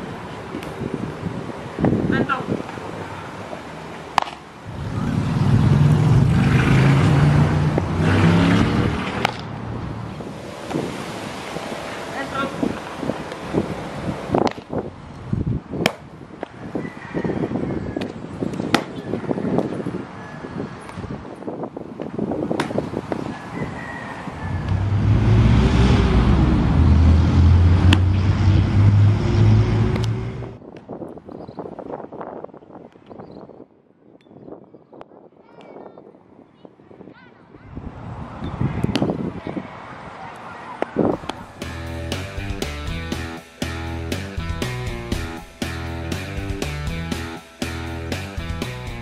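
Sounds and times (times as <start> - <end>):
vehicle engine passing by: 4.7 - 14.3, 23.4 - 30.6.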